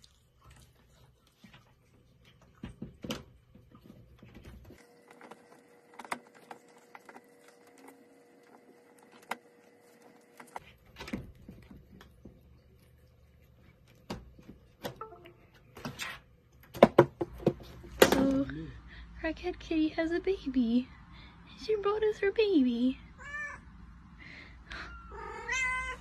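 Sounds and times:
cat chewing and pawing toy: 0.0s - 14.8s.

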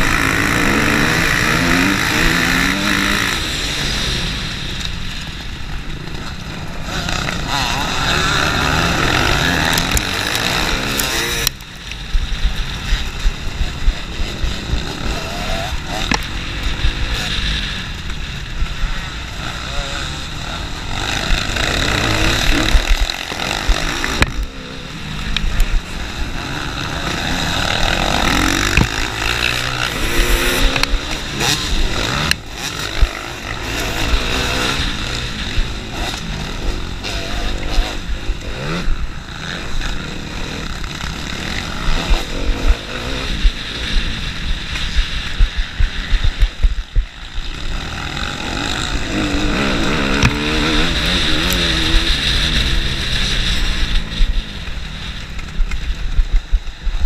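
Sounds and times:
dirt bike engine revving: 0.0s - 57.0s
other dirt bikes running: 0.0s - 57.0s.

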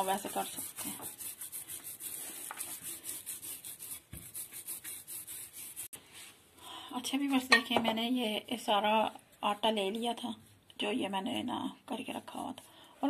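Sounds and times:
rolling pin rolling dough: 0.0s - 5.9s.

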